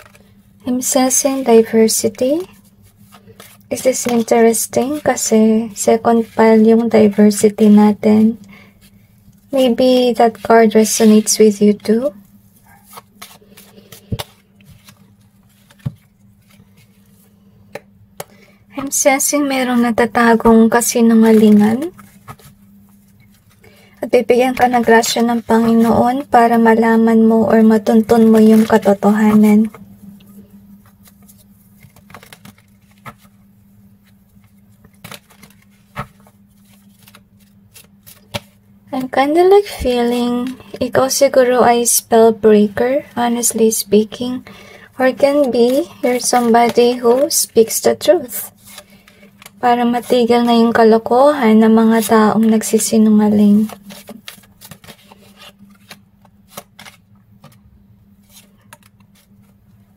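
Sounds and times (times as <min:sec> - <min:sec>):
cards shuffling: 0:00.0 - 0:00.4, 0:02.1 - 0:09.0, 0:12.6 - 0:18.9, 0:20.5 - 0:26.8, 0:27.6 - 0:29.8, 0:30.8 - 0:33.4, 0:34.0 - 0:39.2, 0:45.1 - 0:50.8, 0:52.0 - 0:57.6, 0:58.2 - 0:59.8
faint low hum: 0:00.0 - 0:59.9.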